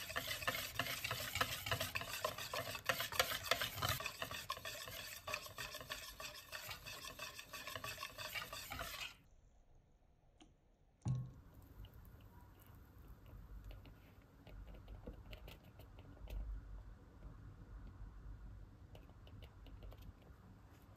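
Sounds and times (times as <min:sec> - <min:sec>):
whisk beating batter in bowl: 0:00.0 - 0:09.2.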